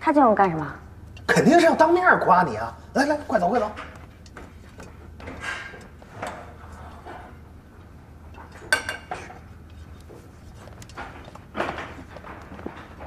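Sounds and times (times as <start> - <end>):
steady low hum: 0.0 - 13.0
soft handling sounds: 9.2 - 13.0.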